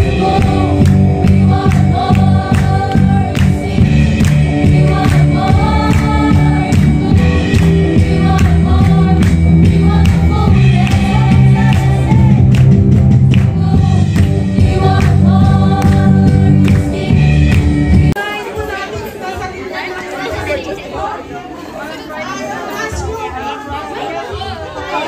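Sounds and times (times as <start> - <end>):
women singing gospel song: 0.0 - 18.0
deep bass notes: 0.0 - 18.2
steady drum beat: 0.0 - 18.2.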